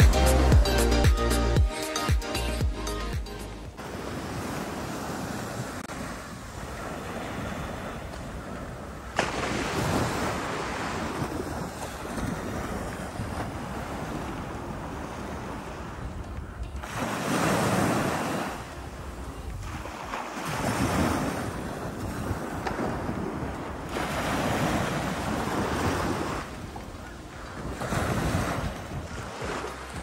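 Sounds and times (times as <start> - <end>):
small waves breaking on sand: 3.8 - 16.2, 16.8 - 30.0
wind rumble on microphone: 4.3 - 30.0.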